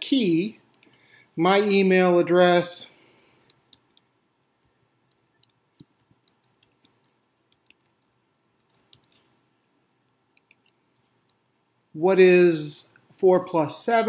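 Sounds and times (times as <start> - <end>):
faint keyboard typing: 3.2 - 11.9.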